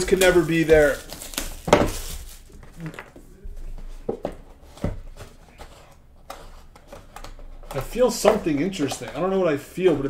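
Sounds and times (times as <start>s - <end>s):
cellophane wrap crinkling: 0.0s - 3.2s.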